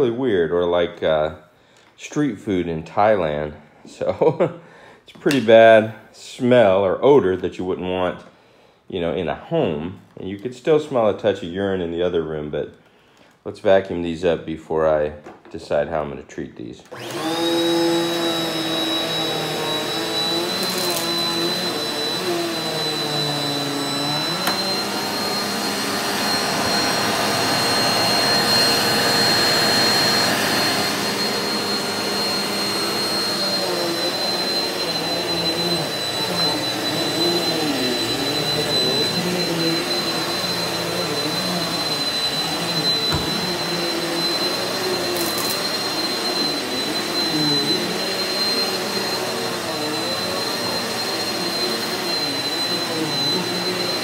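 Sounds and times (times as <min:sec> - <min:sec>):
vacuum cleaner on carpet: 0:16.9 - 0:54.0.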